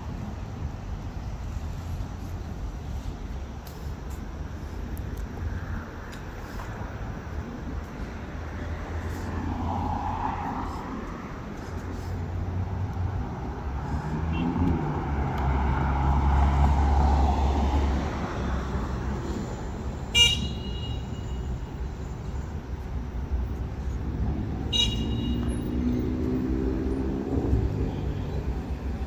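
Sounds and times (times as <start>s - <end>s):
road traffic rumble: 0.0s - 29.0s
short car horn toot: 20.2s - 21.4s.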